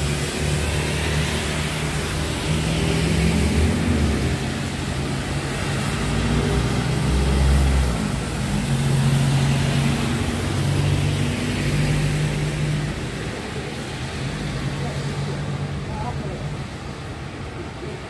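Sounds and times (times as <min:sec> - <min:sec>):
rain and wet tyres hissing: 0:00.0 - 0:18.0
vehicle engines passing: 0:00.0 - 0:18.0.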